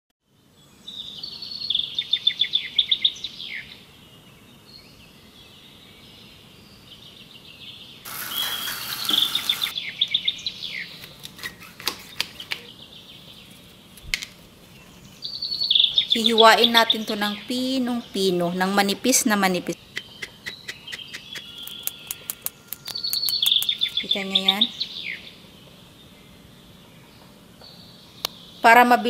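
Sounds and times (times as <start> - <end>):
burst of hiss: 8.1 - 9.7
songbird trilling: 8.1 - 11.0, 15.1 - 18.2, 19.7 - 25.4
sharp clicks: 20.0 - 24.0.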